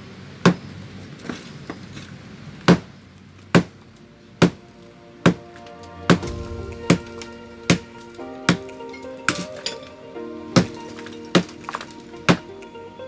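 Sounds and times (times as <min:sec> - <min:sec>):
hammer striking concrete: 0:10.6 - 0:12.5.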